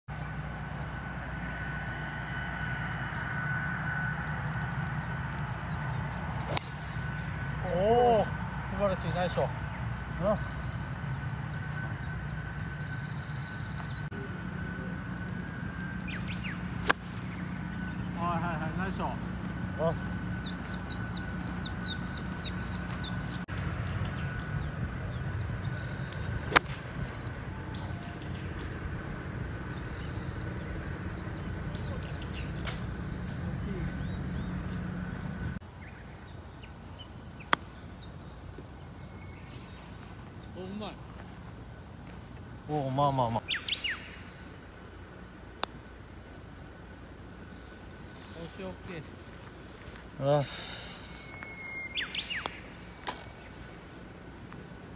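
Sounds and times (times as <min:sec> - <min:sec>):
birds chirping: 0:00.1 - 0:54.9
low outdoor rumble: 0:00.1 - 0:54.9
golf club striking ball: 0:06.4 - 0:07.3, 0:16.8 - 0:17.2, 0:26.0 - 0:27.2, 0:53.0 - 0:53.4.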